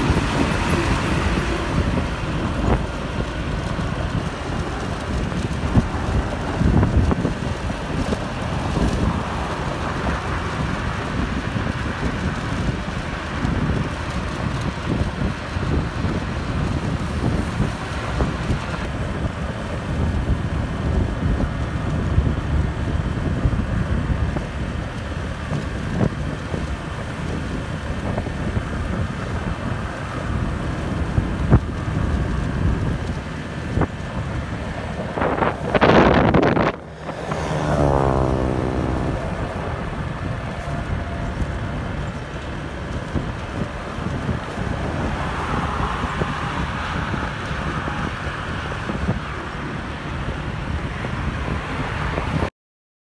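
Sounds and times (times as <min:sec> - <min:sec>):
car road rumble: 0:00.0 - 0:52.5
wind on microphone: 0:00.0 - 0:52.5
loud rush: 0:33.8 - 0:43.3.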